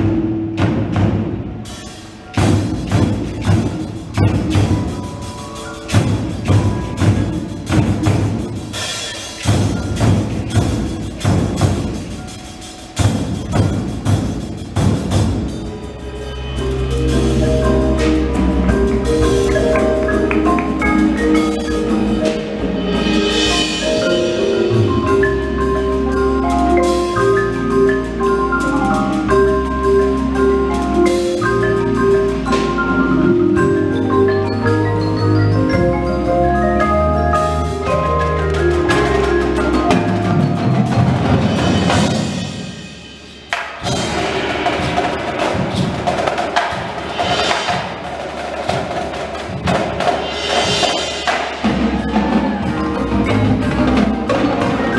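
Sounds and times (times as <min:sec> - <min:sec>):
rapid drum hits: 0:00.0 - 0:15.7, 0:38.5 - 0:54.9
marimba chords: 0:00.0 - 0:54.9.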